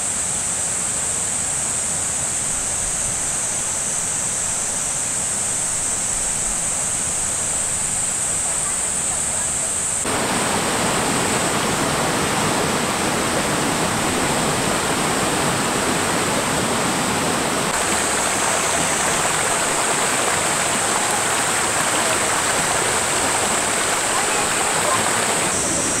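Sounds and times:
stream rushing over rocks: 6.3s - 26.0s.

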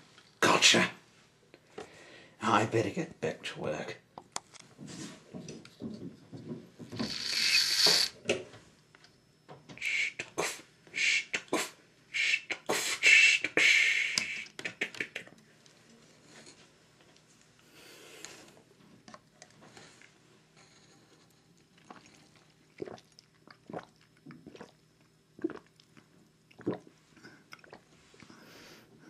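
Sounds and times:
mouth hissing and puffing: 7.0s - 8.2s, 9.8s - 15.3s
sharp mouth clicks: 11.3s - 15.4s.

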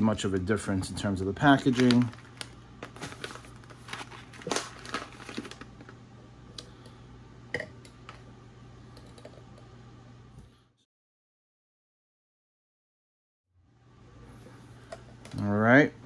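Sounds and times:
steady low hum: 0.0s - 10.8s, 13.6s - 16.0s
foil bags crinkling: 1.0s - 6.0s.

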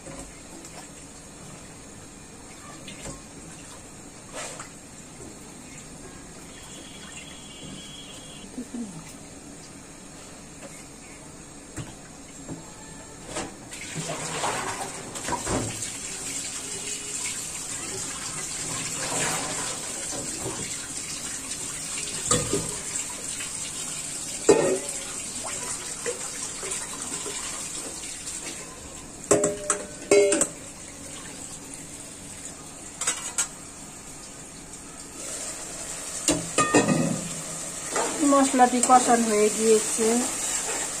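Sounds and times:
metal pots clanking: 24.5s - 25.0s, 29.3s - 30.6s, 36.3s - 37.3s.

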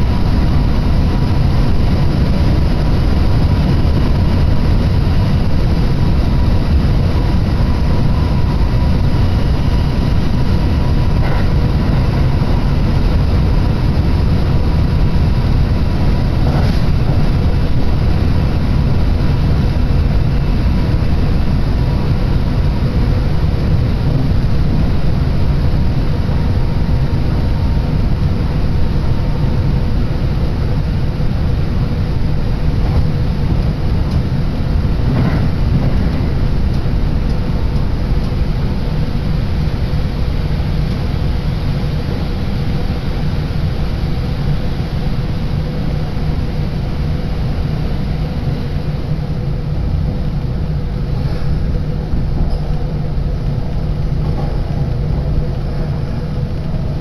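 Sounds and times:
train rumbling in tunnel: 0.0s - 57.0s.

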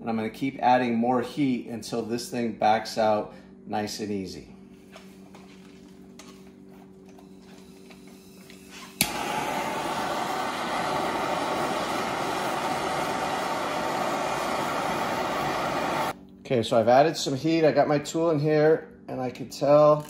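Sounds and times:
faint steady hum: 0.0s - 20.0s
torch lighting click: 7.1s - 16.2s
torch flame hissing: 7.4s - 16.2s.

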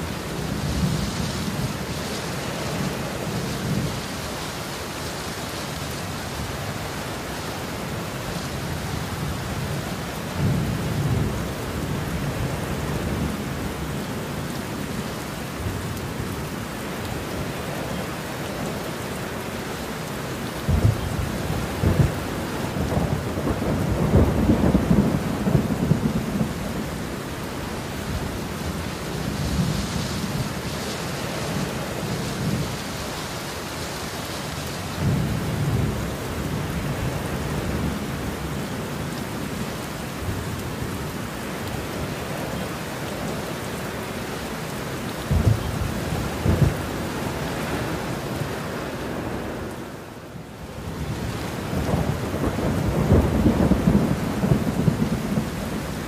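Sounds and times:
heavy rain falling: 0.0s - 56.0s
thunder rumbling: 20.6s - 27.2s, 45.2s - 48.5s, 51.0s - 56.0s.

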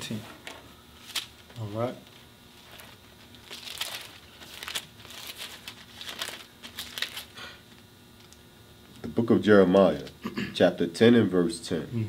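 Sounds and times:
pages rustling being flipped: 0.3s - 8.4s.

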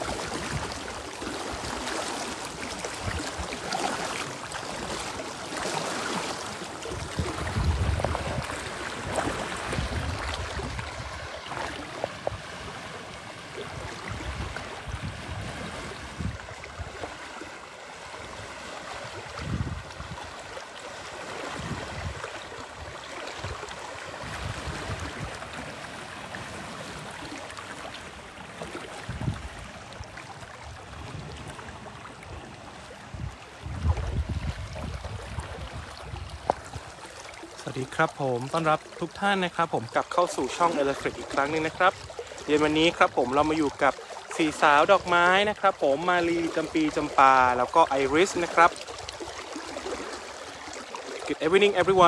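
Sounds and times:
elephants splashing through water: 0.0s - 52.0s
river flowing: 0.0s - 52.0s
wind buffeting microphone: 6.9s - 12.7s, 13.6s - 17.0s, 18.3s - 20.4s, 21.5s - 25.7s, 29.0s - 37.0s.

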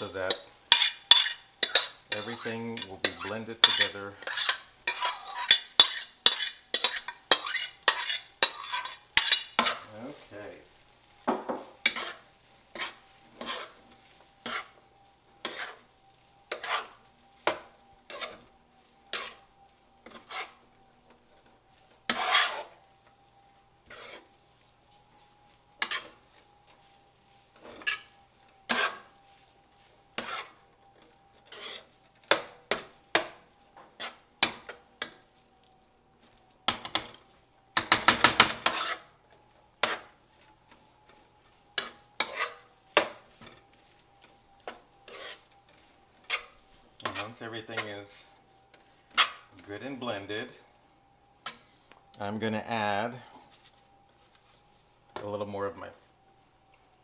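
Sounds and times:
metal spoon scraping frying pan: 0.1s - 9.9s, 11.8s - 14.8s, 15.4s - 15.9s, 16.5s - 18.5s, 19.1s - 20.7s, 22.0s - 22.8s, 23.8s - 24.4s, 25.8s - 26.2s, 27.6s - 29.1s, 30.2s - 30.6s, 31.4s - 32.9s, 33.9s - 35.2s, 37.8s - 39.2s, 39.8s - 40.2s, 40.8s - 47.9s, 48.8s - 49.5s.

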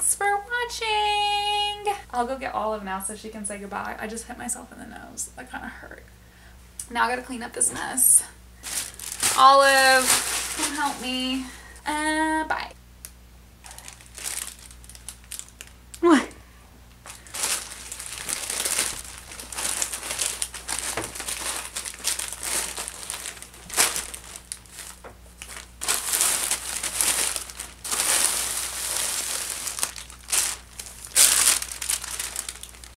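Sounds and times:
plastic bags crinkling: 7.6s - 11.9s, 13.6s - 16.0s, 17.0s - 33.0s.

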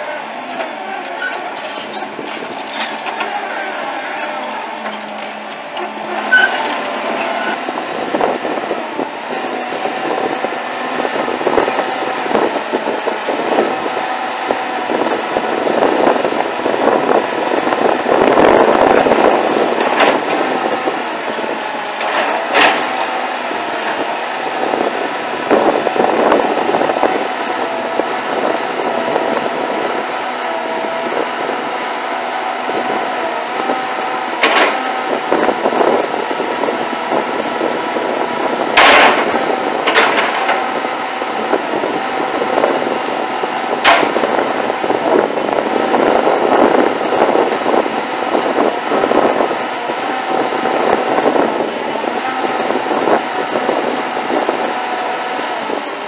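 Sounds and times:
wavering hydraulic whine: 0.0s - 21.8s
excavator diesel engine: 0.0s - 56.0s.

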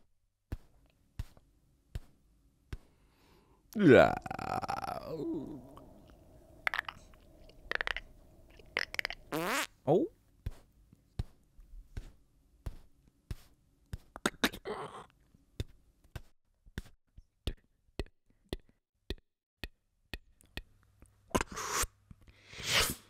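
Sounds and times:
breathy mouth burst: 3.8s - 9.6s
beatboxed mouth clicks and taps: 6.7s - 9.6s, 12.6s - 14.6s, 15.6s - 22.2s
sharp mouth hiss: 21.4s - 23.0s.

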